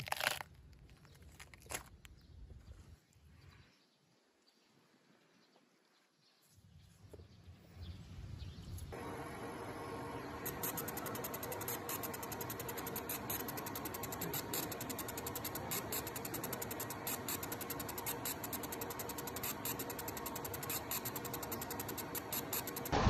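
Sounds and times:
steady machine hum: 8.9s - 23.0s
laser engraver rapid ticking: 10.2s - 23.0s.

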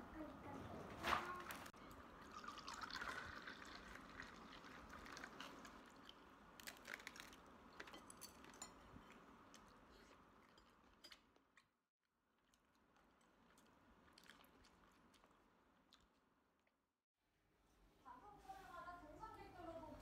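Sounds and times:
liquid poured into a glass: 1.9s - 6.2s
quiet chewing: 3.6s - 11.7s, 12.4s - 16.7s.

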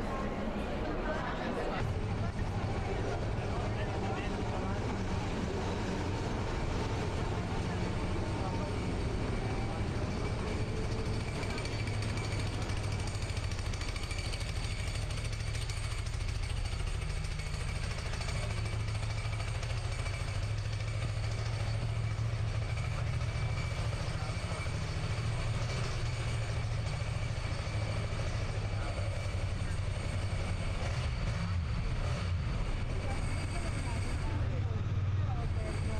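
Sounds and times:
city street traffic rumble: 0.0s - 35.9s
tram passing close by: 0.0s - 35.9s.

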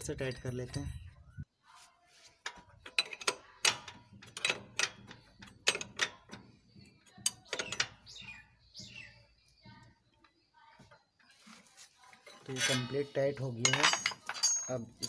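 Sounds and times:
spanner clinking on metal nut: 2.4s - 6.5s, 13.6s - 15.0s.

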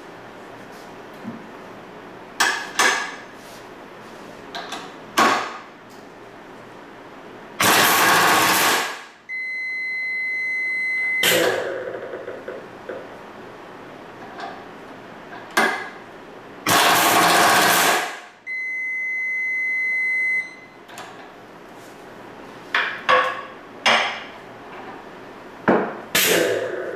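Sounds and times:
pneumatic impact wrench: 7.6s - 9.1s, 11.2s - 11.8s, 16.6s - 18.3s, 26.1s - 26.9s
steady high beep: 9.3s - 11.3s, 18.5s - 20.7s.

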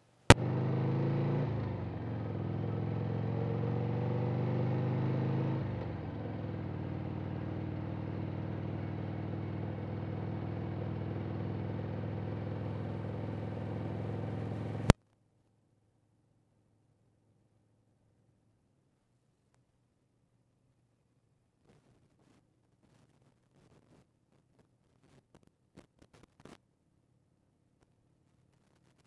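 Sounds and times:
motorcycle engine accelerating: 0.3s - 15.0s.

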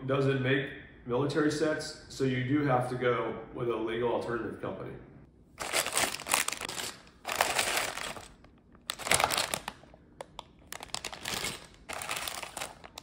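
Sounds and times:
plastic bags crinkling: 5.6s - 13.0s.

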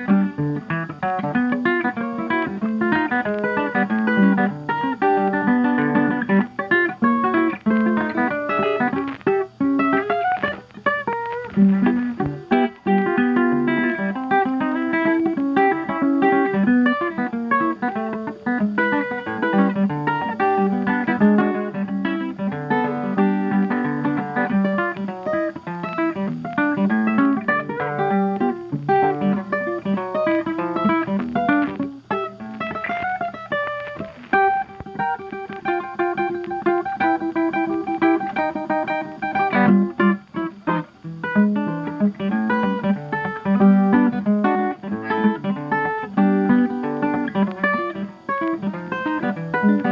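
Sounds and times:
lively ragtime music: 0.0s - 49.9s.

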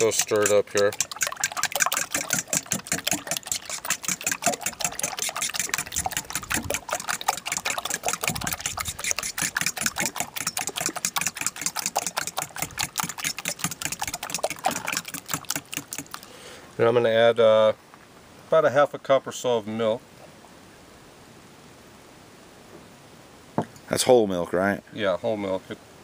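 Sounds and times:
fork clicking against bowl: 0.0s - 6.6s, 7.2s - 16.2s
eggs sloshing: 0.0s - 16.5s.

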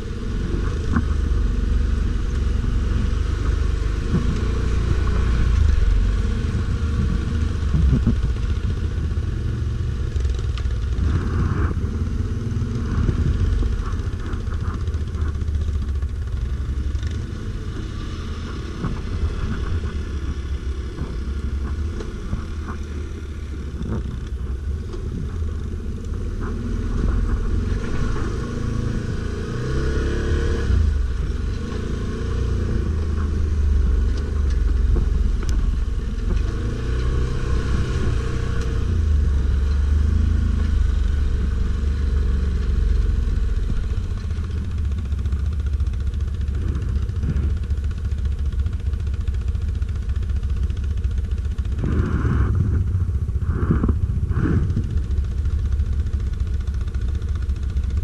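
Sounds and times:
atv engine running: 0.0s - 58.0s
clatter over rough ground: 0.0s - 58.0s.

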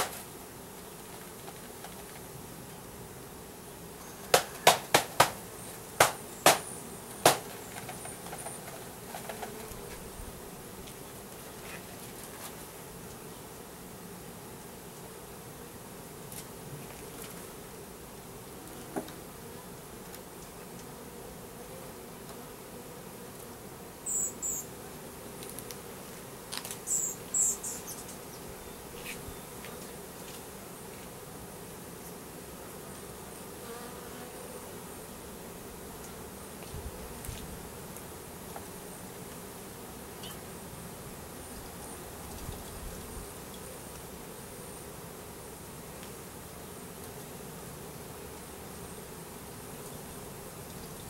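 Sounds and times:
bees buzzing: 0.0s - 51.0s
knocks on wooden box: 4.4s - 5.4s, 6.0s - 7.5s.

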